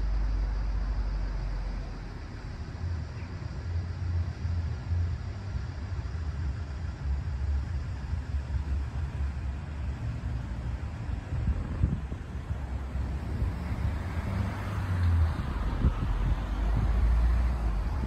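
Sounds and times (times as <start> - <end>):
wind buffeting microphone: 10.3 - 18.0.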